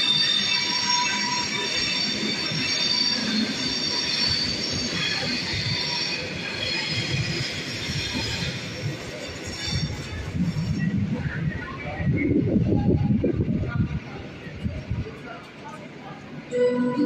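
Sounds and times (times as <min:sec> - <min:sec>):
train wheels squealing: 0:00.0 - 0:10.9.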